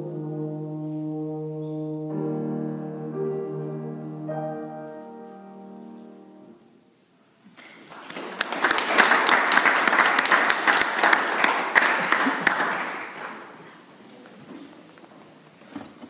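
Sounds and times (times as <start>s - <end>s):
small audience clapping: 7.5s - 14.0s.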